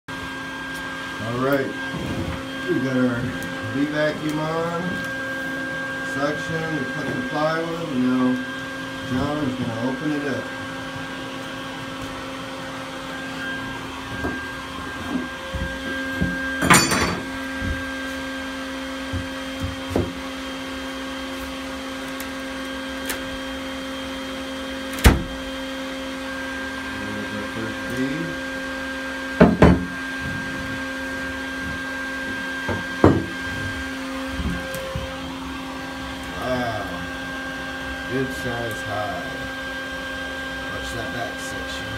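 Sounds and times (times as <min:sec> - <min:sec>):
vacuum motor hum: 0:00.1 - 0:41.9
tools knocking on plywood: 0:29.4 - 0:29.9, 0:32.7 - 0:33.3.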